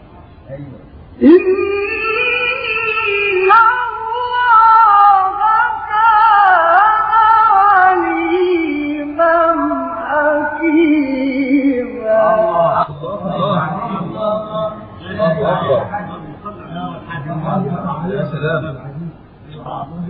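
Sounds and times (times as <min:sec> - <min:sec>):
man reciting melodically: 0:06.6 - 0:20.0.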